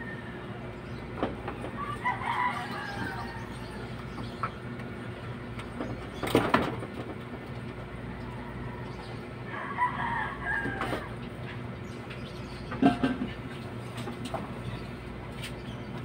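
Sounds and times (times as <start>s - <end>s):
rooster crowing: 0.0s - 0.7s, 1.8s - 4.0s, 8.2s - 11.2s.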